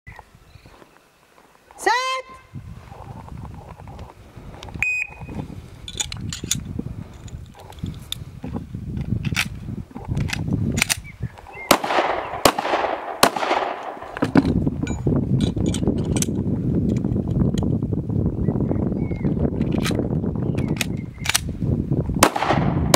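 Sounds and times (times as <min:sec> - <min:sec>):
shot timer beep: 0:04.8 - 0:05.2
pistol parts clicking together: 0:05.9 - 0:08.2, 0:09.0 - 0:11.1, 0:15.4 - 0:17.1, 0:19.6 - 0:21.5
pistol shots ringing: 0:11.6 - 0:14.2, 0:22.2 - 0:22.9.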